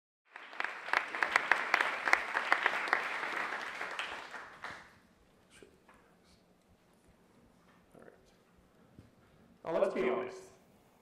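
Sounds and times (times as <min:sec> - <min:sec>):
audience applauding: 0:00.3 - 0:05.0.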